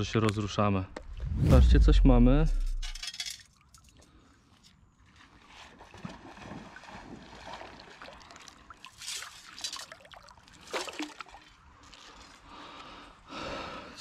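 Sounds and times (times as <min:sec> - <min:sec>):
water sloshing and splashing: 0:03.5 - 0:12.5.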